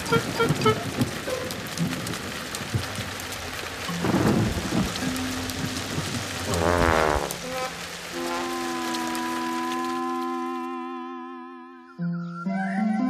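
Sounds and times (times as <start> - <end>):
plinking music notes: 0.0 - 1.0, 3.9 - 6.6
heavy rain: 0.0 - 11.8
low thunder rumble: 0.2 - 9.2.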